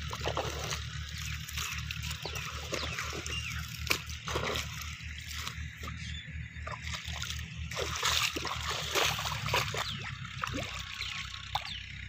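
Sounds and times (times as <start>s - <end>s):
hoe working mud: 0.0s - 12.0s
steady low rumble: 0.0s - 12.0s
water sloshing as person wades: 0.0s - 12.0s.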